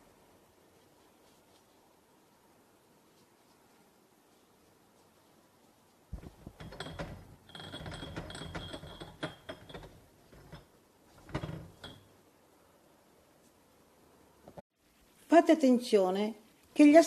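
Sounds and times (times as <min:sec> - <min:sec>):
scraping and rustling: 0:03.1 - 0:12.2.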